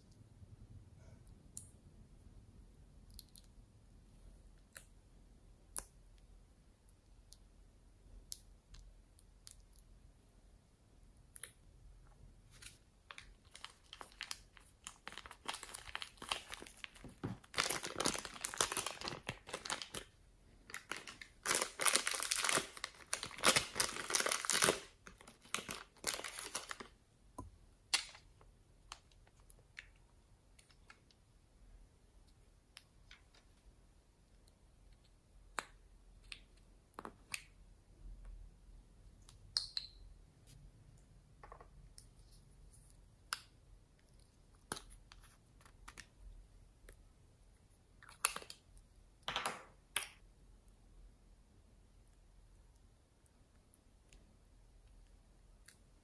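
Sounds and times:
plastic bag crinkling: 0:12.5 - 0:26.9.

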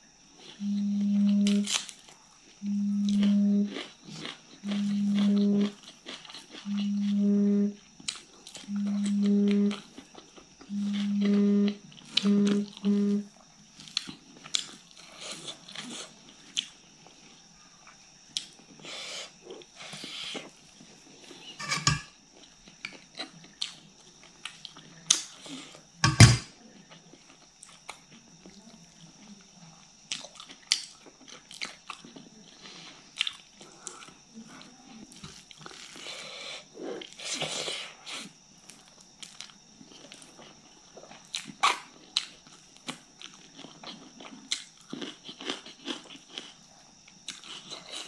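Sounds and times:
faint high whine: 0:00.0 - 0:23.0
wet chewing and lip smacking: 0:03.0 - 0:07.2.

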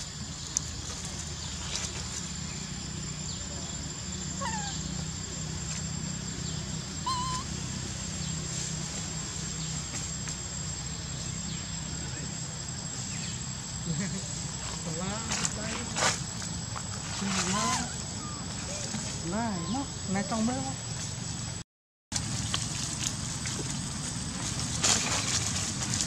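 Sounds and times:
chirping animal calls: 0:04.3 - 0:05.1, 0:07.0 - 0:07.6, 0:17.4 - 0:20.3.

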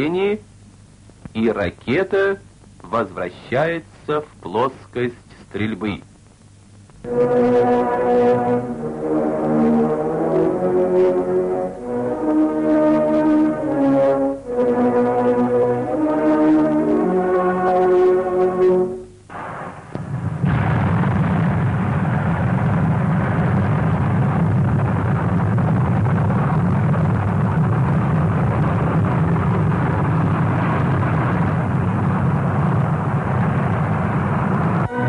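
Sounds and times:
brass music: 0:07.0 - 0:19.5, 0:34.8 - 0:35.0
rocket engine roar: 0:07.0 - 0:35.0.

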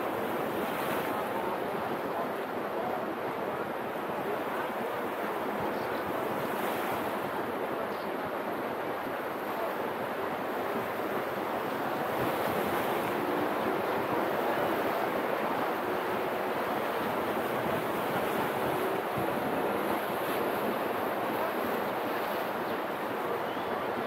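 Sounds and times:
surf washing against breakwater: 0:00.0 - 0:24.0
wind on microphone: 0:09.6 - 0:24.0.

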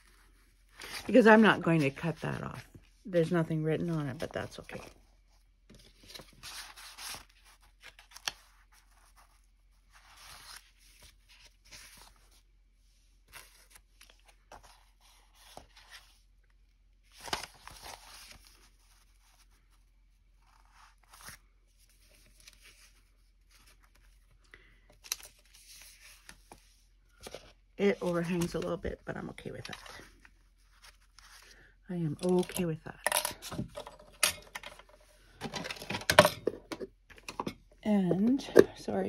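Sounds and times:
paper pages rustling: 0:00.0 - 0:02.9, 0:05.7 - 0:12.4, 0:13.2 - 0:16.2, 0:17.0 - 0:32.6.

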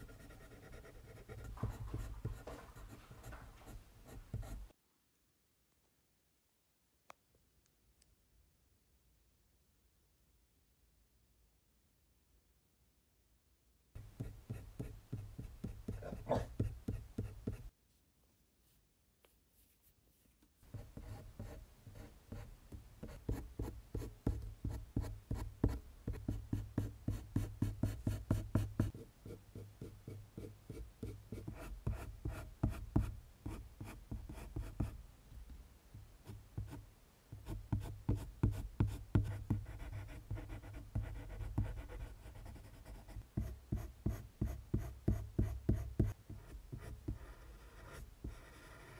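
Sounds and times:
pencil scratching on paper: 0:00.0 - 0:04.7, 0:14.0 - 0:17.7, 0:20.6 - 0:35.0, 0:37.4 - 0:48.9.

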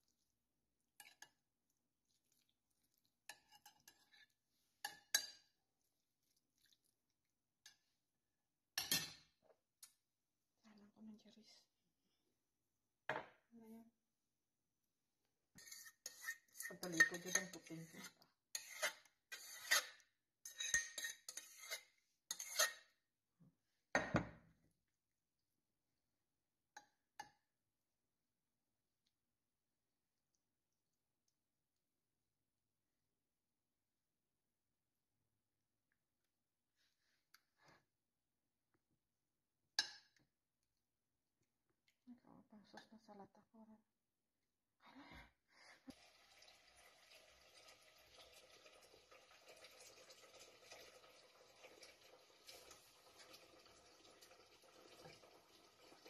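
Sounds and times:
spoon scraping baking dish: 0:01.0 - 0:01.4, 0:03.0 - 0:05.6, 0:15.6 - 0:23.0.

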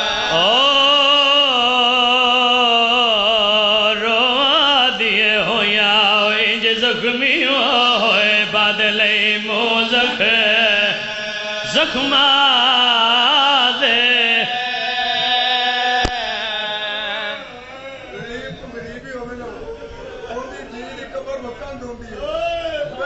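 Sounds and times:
man singing a lament: 0:00.0 - 0:20.1
low held drone: 0:09.2 - 0:20.4.

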